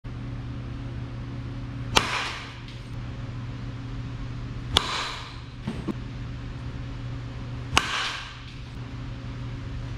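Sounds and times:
steady low hum: 0:00.0 - 0:09.9
bat striking softball: 0:01.9 - 0:02.8, 0:07.8 - 0:08.7.

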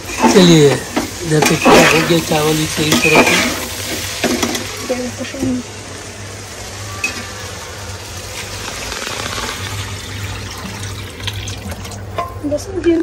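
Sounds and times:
rice bubbling in pot: 0:04.7 - 0:12.5.

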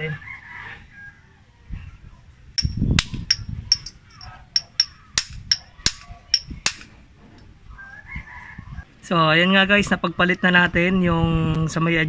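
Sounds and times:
hammer tapping on metal: 0:02.6 - 0:06.9.

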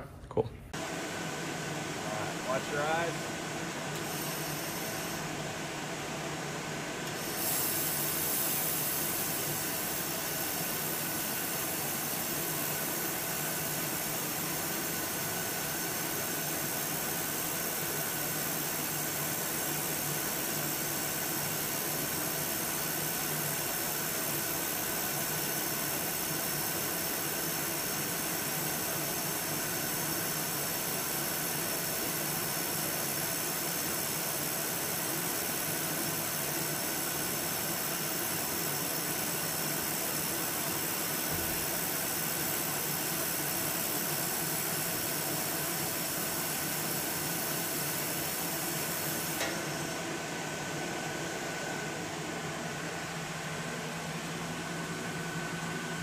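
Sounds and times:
laser welder hissing: 0:02.1 - 0:03.2, 0:03.9 - 0:05.3, 0:07.0 - 0:50.0.

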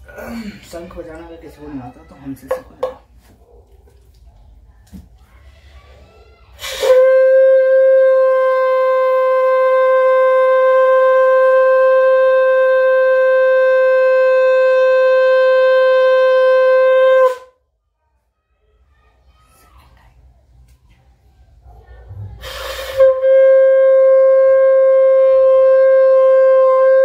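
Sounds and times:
conch shell blown: 0:06.6 - 0:17.6, 0:22.4 - 0:27.0
rush of breath: 0:22.1 - 0:23.0.

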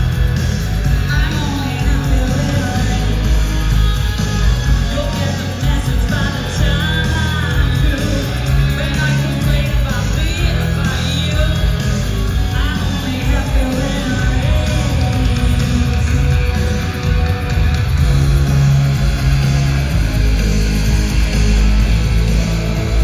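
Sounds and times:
bass: 0:00.0 - 0:23.0
distorted electric guitars: 0:00.0 - 0:23.0
drums: 0:00.0 - 0:23.0
woman singing lead vocal: 0:00.9 - 0:17.1.

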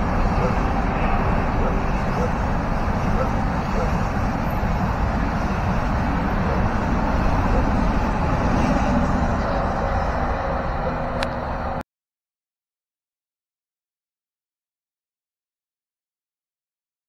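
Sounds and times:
train rumbling on track: 0:00.0 - 0:11.8.

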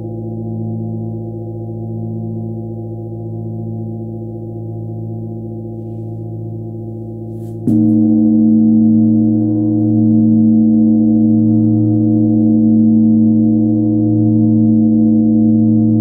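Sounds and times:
mallet striking bell: 0:07.6 - 0:11.7
large bell ringing: 0:07.7 - 0:16.0.

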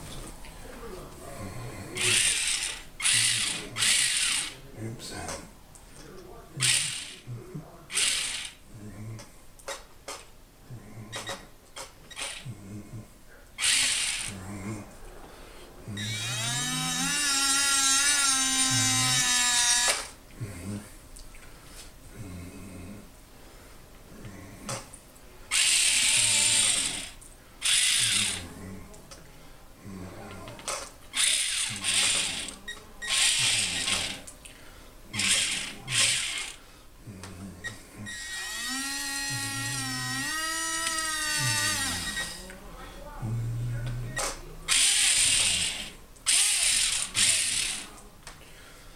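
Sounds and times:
small electric motors whining: 0:02.0 - 0:04.6, 0:06.6 - 0:07.2, 0:07.9 - 0:08.6, 0:13.6 - 0:14.4, 0:15.9 - 0:20.2, 0:25.5 - 0:28.5, 0:30.3 - 0:34.3, 0:35.1 - 0:36.6, 0:37.6 - 0:42.5, 0:44.7 - 0:48.0.

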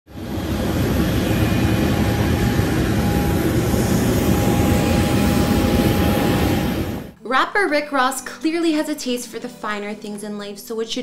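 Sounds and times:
jet engine rumble: 0:00.1 - 0:07.2
thin steady whine: 0:00.1 - 0:07.2.

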